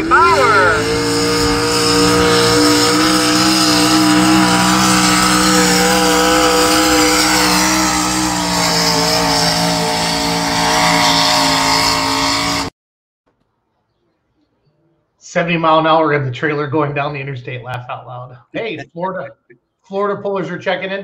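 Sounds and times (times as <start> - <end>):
tractor engine at high revs: 0.0 - 12.7.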